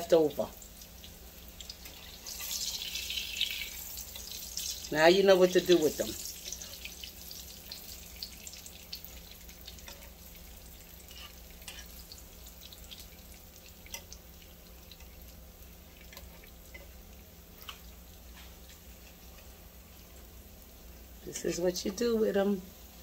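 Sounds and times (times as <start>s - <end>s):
food sizzling in hot oil: 0.0s - 23.0s
oil crackling and popping: 0.6s - 5.0s, 5.6s - 19.6s.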